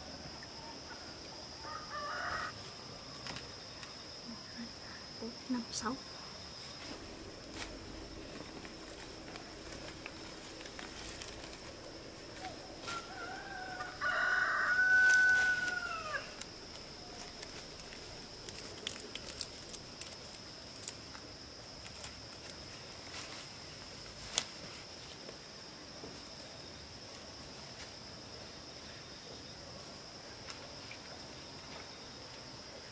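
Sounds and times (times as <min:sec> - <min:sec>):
high insect trill: 0:00.0 - 0:32.9
rooster crowing: 0:01.5 - 0:02.9, 0:12.4 - 0:16.4
vegetable stems snapping and rustling: 0:07.5 - 0:13.9, 0:15.0 - 0:23.4, 0:24.1 - 0:24.7.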